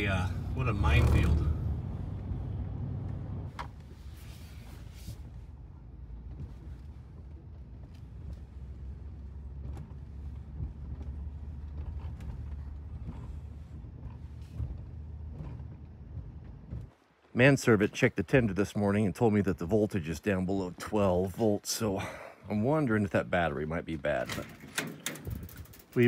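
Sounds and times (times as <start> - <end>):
vehicle rumble inside cab: 0.0 - 26.0
faint clicks and creaks: 6.0 - 17.3, 24.2 - 26.0.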